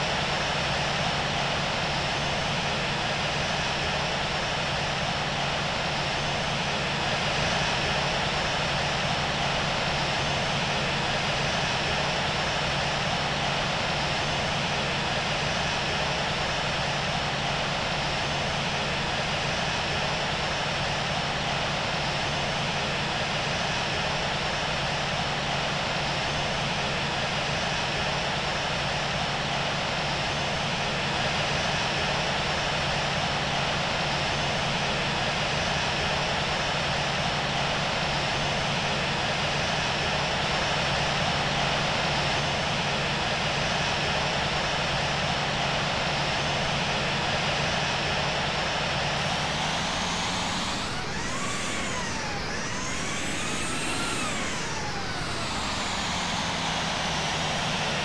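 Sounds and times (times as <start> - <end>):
airplane cabin engine rush: 47.8 - 58.0
constant low hum: 49.0 - 58.0.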